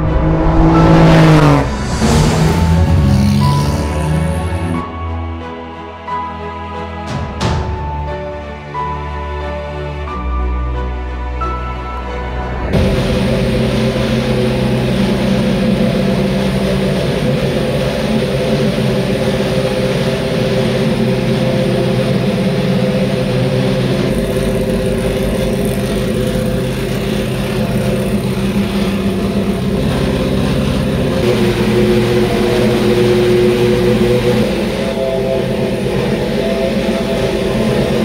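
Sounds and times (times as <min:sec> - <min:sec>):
race car engine idling: 0:01.7 - 0:04.7, 0:12.8 - 0:38.0.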